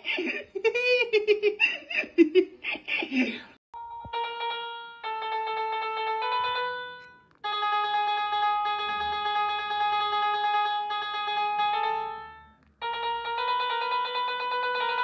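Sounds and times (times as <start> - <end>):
piano app notes from phone speaker: 3.8 - 15.0.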